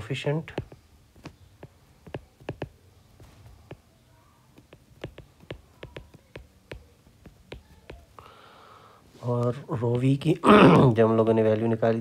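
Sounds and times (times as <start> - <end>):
stylus tapping on glass screen: 0.5 - 3.8, 4.5 - 8.1.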